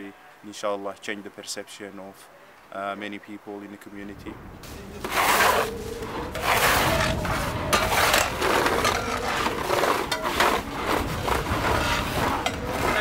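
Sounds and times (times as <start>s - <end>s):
snow shovel scraping icy slush: 5.0s - 13.0s.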